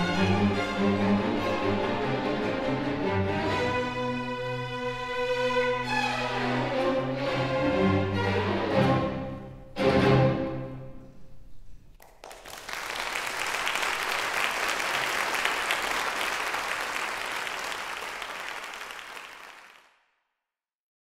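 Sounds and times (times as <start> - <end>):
audience applause: 12.0 - 20.0.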